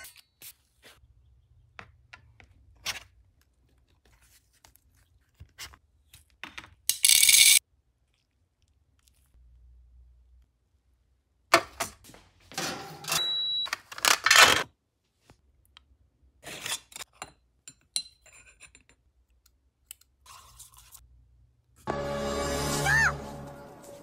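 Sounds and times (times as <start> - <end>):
brief high tone: 21.9 - 24.0.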